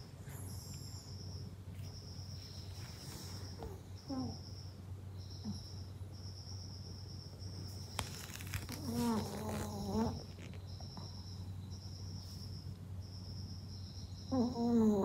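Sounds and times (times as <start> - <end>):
dog whining: 8.7 - 10.5, 14.3 - 15.0.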